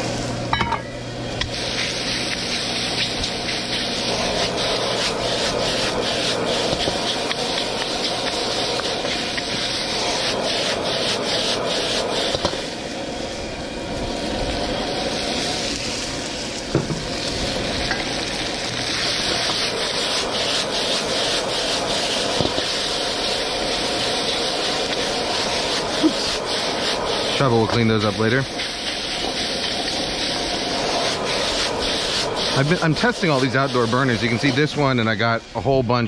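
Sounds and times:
food sizzling in a wok: 0:00.0 - 0:35.8
gas burner rushing: 0:00.0 - 0:36.0
wok knocking: 0:00.5 - 0:01.0, 0:16.7 - 0:17.2
spatula scraping wok: 0:01.6 - 0:12.6, 0:16.8 - 0:34.8.

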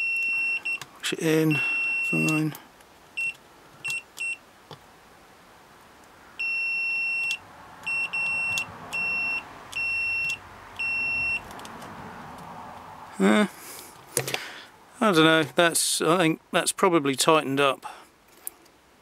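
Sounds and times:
multimeter beeps: 0:00.0 - 0:00.8, 0:01.5 - 0:02.5, 0:03.2 - 0:04.4, 0:06.4 - 0:11.5.

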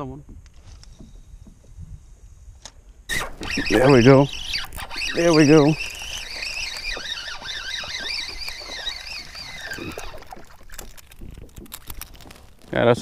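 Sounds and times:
fishing reel whine: 0:03.1 - 0:12.8.

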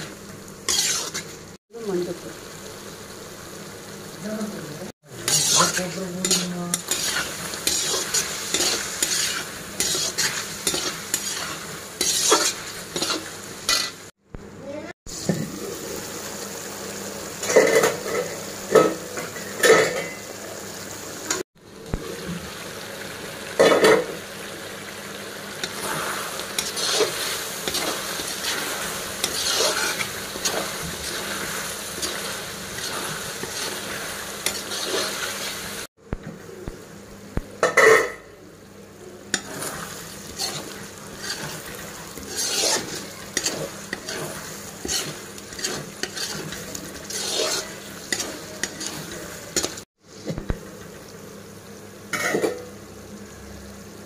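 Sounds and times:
chicken sizzling in oil: 0:00.0 - 0:54.0
metal spatula scraping pan: 0:00.7 - 0:01.4, 0:05.1 - 0:14.0, 0:25.6 - 0:35.4, 0:39.4 - 0:49.8.

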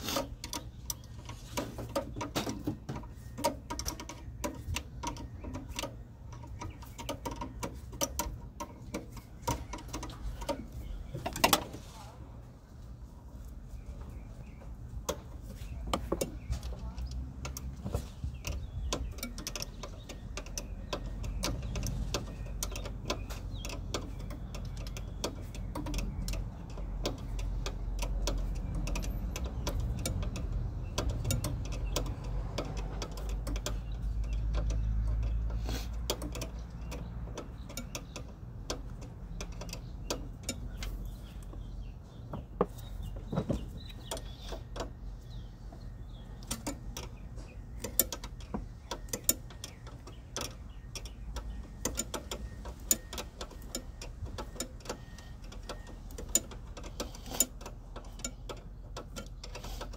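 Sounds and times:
ratchet wrench clicking: 0:18.4 - 0:41.5, 0:47.8 - 0:59.9.

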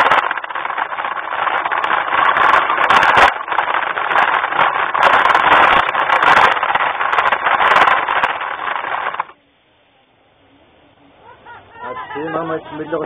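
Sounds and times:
model train rattling whir: 0:00.0 - 0:09.4.

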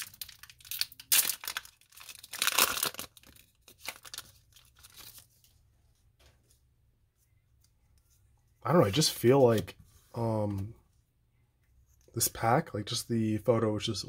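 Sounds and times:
foil wrapper ripping: 0:00.0 - 0:05.2
foil crinkling: 0:00.0 - 0:05.3.

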